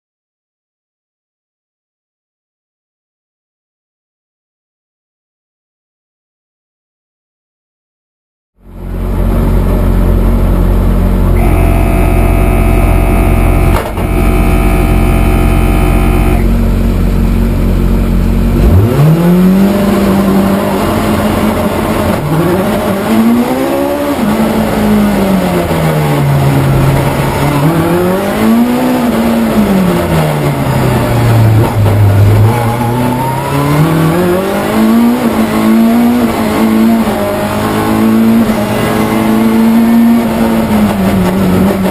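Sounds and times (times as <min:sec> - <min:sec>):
race car engine revving: 0:08.7 - 0:41.9
steady high tone: 0:11.3 - 0:16.6.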